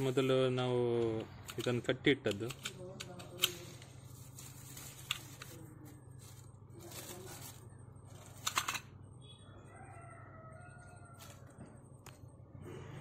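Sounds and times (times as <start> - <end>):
rooster crowing: 9.4 - 11.8.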